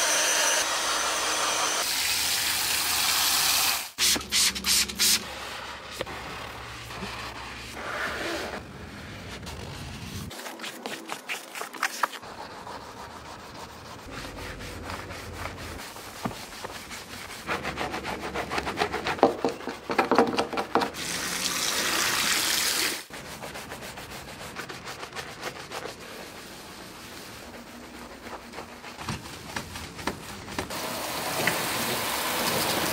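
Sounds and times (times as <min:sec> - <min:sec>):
brushes scrubbing carpet: 0:04.4 - 0:19.9, 0:23.1 - 0:30.8
cloth wiping leather seat: 0:12.3 - 0:17.5.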